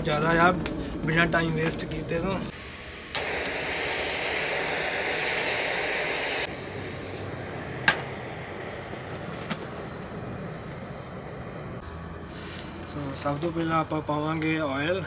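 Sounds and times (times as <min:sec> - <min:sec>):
gas camping stove hissing: 0:02.0 - 0:11.8.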